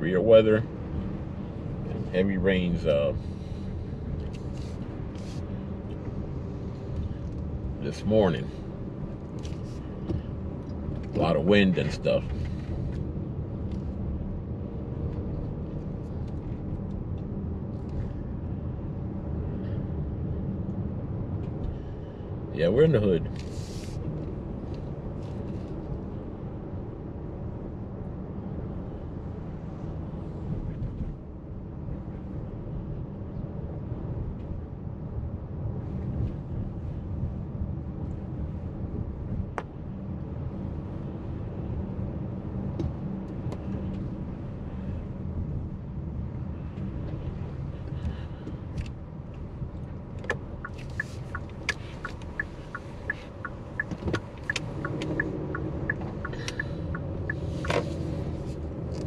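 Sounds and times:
car engine and tyre rumble: 0.0 - 59.0
turn signal ticking: 47.9 - 59.0.

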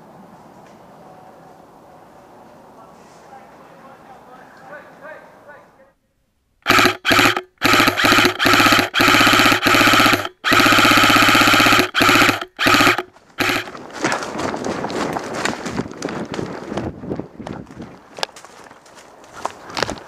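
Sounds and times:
airsoft gun automatic bursts: 6.6 - 13.7.

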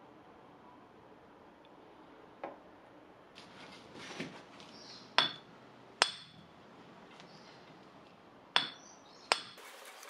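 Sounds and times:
hammer clinking on metal: 5.2 - 6.5, 8.6 - 9.6.

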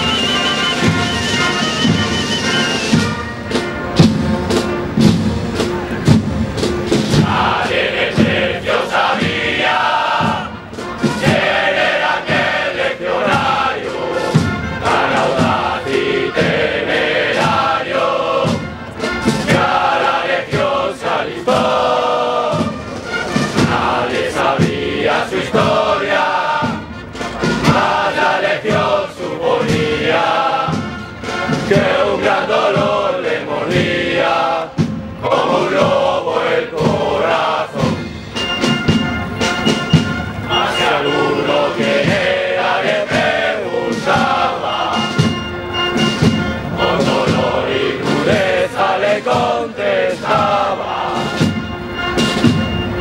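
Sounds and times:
men singing a hymn in chorus: 7.2 - 10.5, 11.2 - 18.6, 19.4 - 22.7, 23.6 - 26.8, 27.6 - 30.9, 31.7 - 38.1, 40.5 - 45.3, 46.8 - 51.5.

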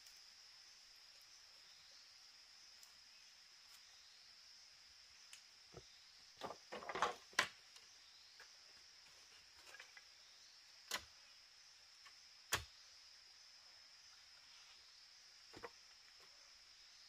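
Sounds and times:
forest insects humming: 0.0 - 17.0
knocks and clatters of material: 6.4 - 7.5.

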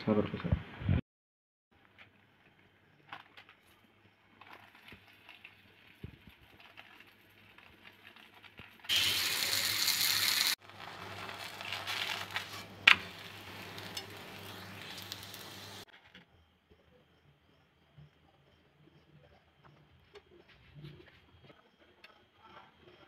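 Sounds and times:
flatbread sizzling on griddle: 3.0 - 16.2
plastic sheet crinkling: 4.4 - 15.9.

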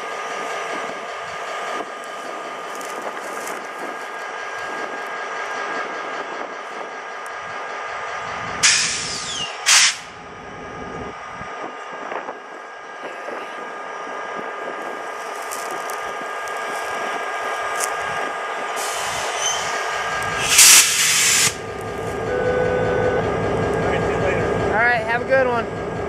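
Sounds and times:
diesel locomotive engine: 0.0 - 26.0
air brake hiss: 8.6 - 10.1, 18.8 - 19.8, 20.4 - 21.6.

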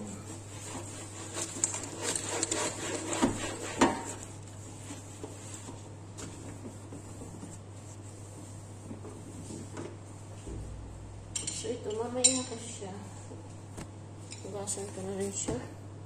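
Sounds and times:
cloth wiping metal stovetop: 0.2 - 10.4.

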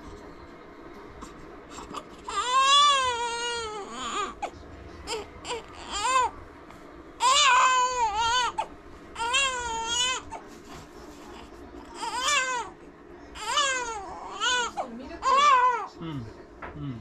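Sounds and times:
baby crying: 1.7 - 6.4, 7.2 - 10.4, 11.3 - 12.8, 13.4 - 15.9.

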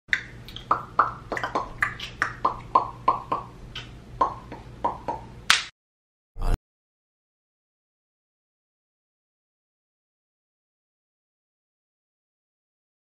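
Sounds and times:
finger snaps: 0.1 - 5.7.

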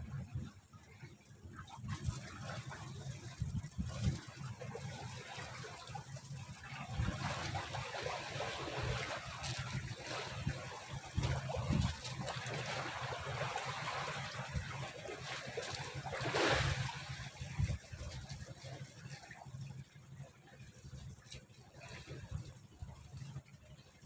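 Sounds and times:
water trickling and lapping: 0.0 - 24.0
water splash: 1.8 - 19.2.

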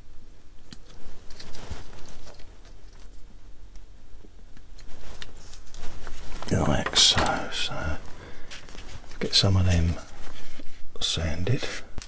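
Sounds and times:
handling noises: 4.6 - 10.4.

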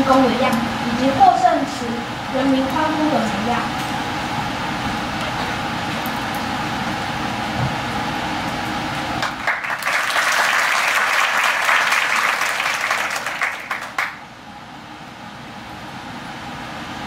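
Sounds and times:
audience applauding: 9.2 - 14.2.

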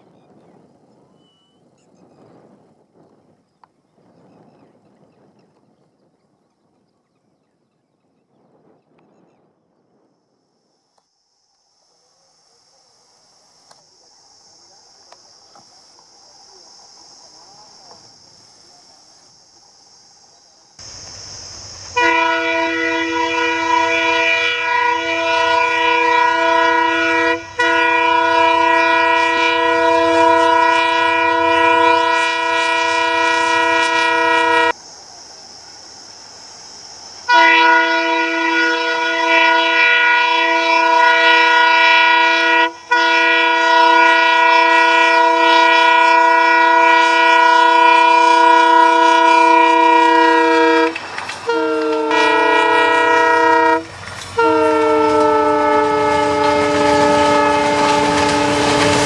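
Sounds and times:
locomotive horn blasts: 21.9 - 34.7, 37.3 - 59.0.

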